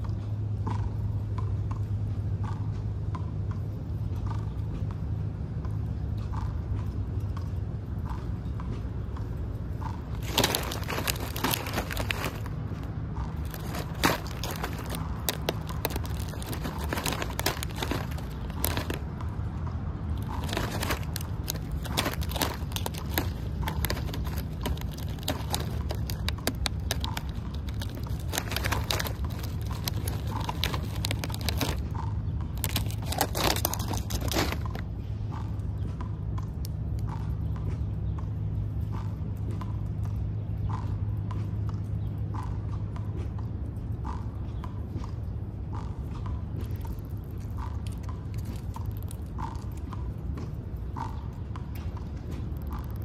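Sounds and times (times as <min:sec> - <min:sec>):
steady low hum: 0:00.0 - 0:53.0
peanuts rattling in plastic tray: 0:10.1 - 0:12.6, 0:13.3 - 0:19.1, 0:20.1 - 0:31.9, 0:32.6 - 0:34.8.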